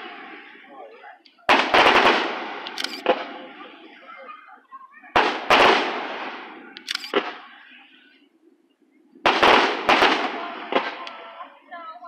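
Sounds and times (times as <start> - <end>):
fireworks bangs with echo: 1.5 - 3.6, 5.1 - 7.6, 9.2 - 11.4.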